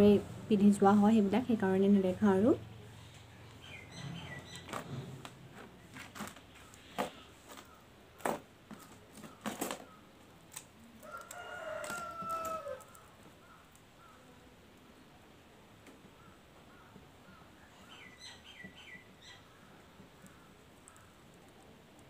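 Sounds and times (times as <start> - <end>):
rooster crowing: 11.0 - 13.2.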